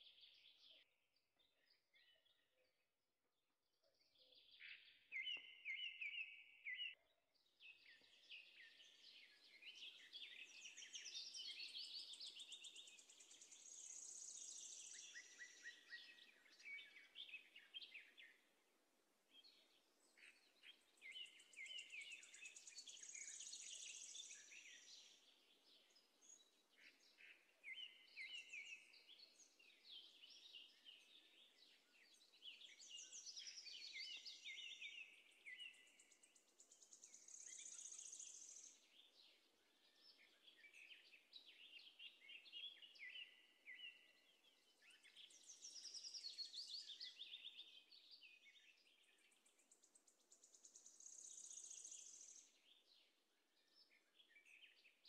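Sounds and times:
birds chirping and trilling: 3.9s - 18.7s, 19.3s - 55.0s.

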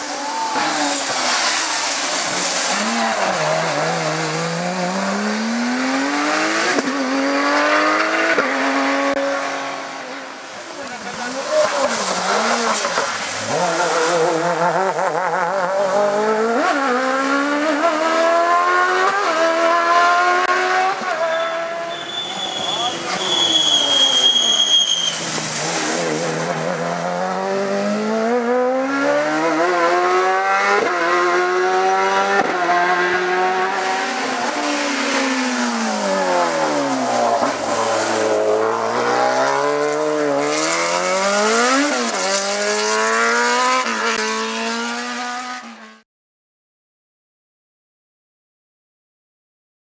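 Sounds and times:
race car engine revving: 10.8s - 21.8s, 25.1s - 46.0s
brief high squeal: 21.2s - 25.3s.

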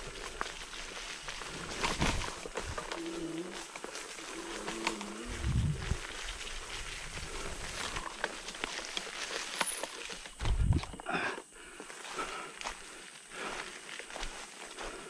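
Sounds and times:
leaf litter rustling and crackling: 0.0s - 10.9s.

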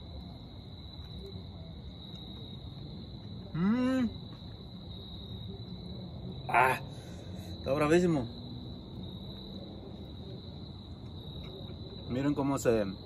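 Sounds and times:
insects droning: 0.0s - 13.0s
man exclaiming mmm: 3.5s - 4.2s.

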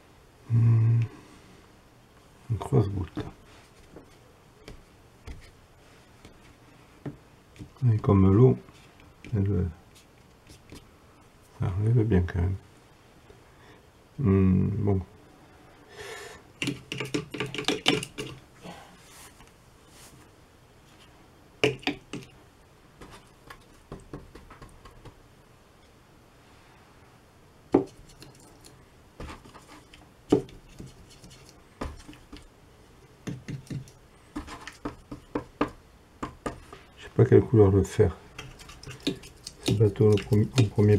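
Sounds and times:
paintbrush tapping paint box: 21.6s - 22.3s, 33.2s - 36.7s, 38.4s - 40.9s.

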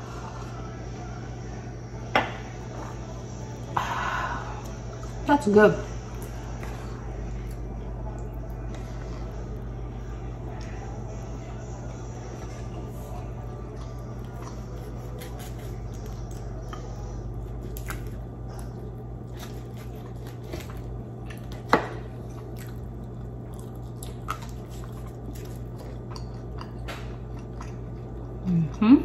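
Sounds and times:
steady low hum: 0.0s - 29.0s
chewing and wet squishing: 6.1s - 9.8s, 12.2s - 28.9s.

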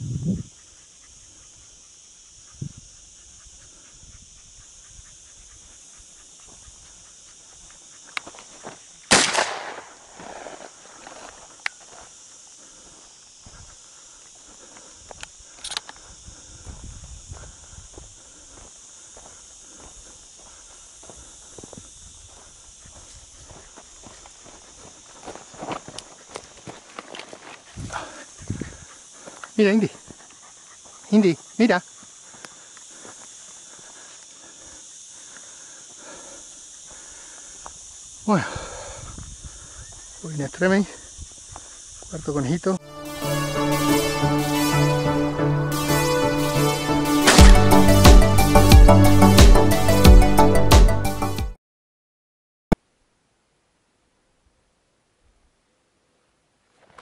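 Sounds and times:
steady high hiss: 0.0s - 50.7s
footsteps through dry scrub: 5.5s - 36.0s, 39.4s - 42.3s, 46.0s - 48.9s
shotgun shot: 9.1s - 10.5s, 47.2s - 47.6s.

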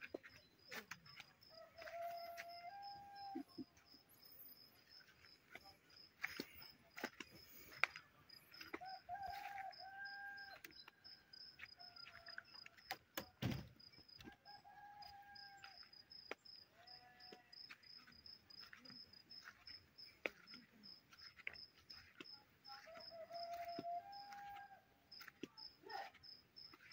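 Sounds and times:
insect chirping: 0.0s - 24.4s, 25.1s - 26.9s
rooster crowing: 1.4s - 3.7s, 8.6s - 12.8s, 14.2s - 16.0s, 22.8s - 25.3s
thump: 13.4s - 13.7s.

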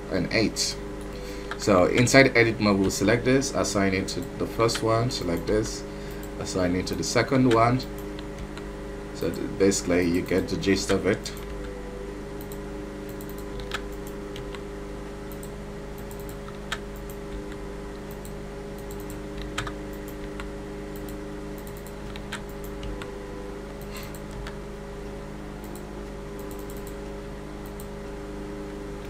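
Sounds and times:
steady low hum: 0.0s - 29.0s
keyboard and mouse clicks: 12.4s - 14.6s, 15.3s - 23.1s, 23.7s - 24.6s, 26.4s - 27.0s.

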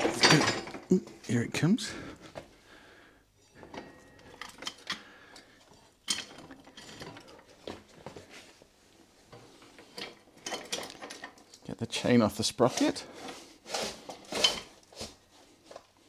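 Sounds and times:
metallic clinks and scraping: 3.4s - 7.6s, 9.7s - 11.7s, 12.7s - 14.8s.

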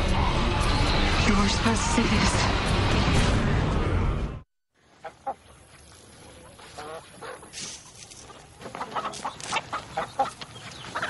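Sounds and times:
chickens clucking: 6.3s - 7.5s, 8.2s - 11.0s.

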